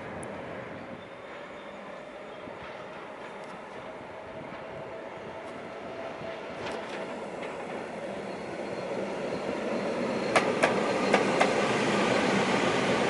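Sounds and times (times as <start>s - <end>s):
electric locomotive passing: 0.0s - 13.0s.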